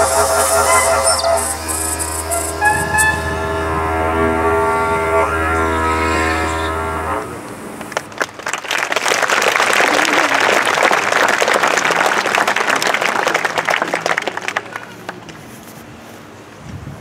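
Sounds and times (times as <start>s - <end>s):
crowd of children applauding: 7.8s - 15.4s.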